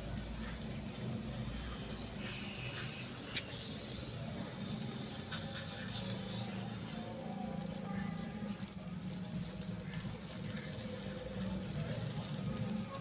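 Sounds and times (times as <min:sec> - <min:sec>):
food sizzling on hot griddle: 0:00.0 - 0:13.0.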